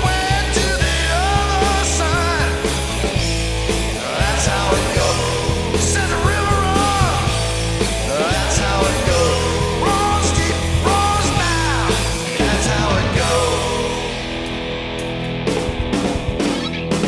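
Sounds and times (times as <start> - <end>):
rock band playing: 0.0 - 17.0.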